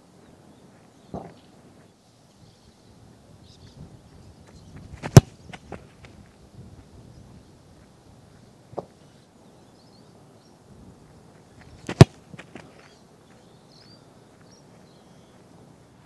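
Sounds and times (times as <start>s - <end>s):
faint bird chirps: 0.0s - 5.6s, 12.6s - 15.6s
boot kicking football thud: 5.0s - 5.8s, 11.9s - 12.6s.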